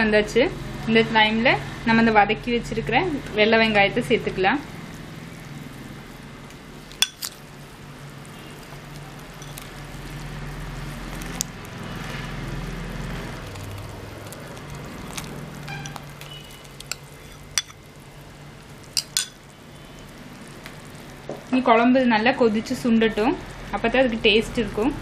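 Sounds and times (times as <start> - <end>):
glass and utensil clinking on pan: 7.0 - 7.4, 9.4 - 9.7, 16.9 - 17.8, 19.0 - 19.4.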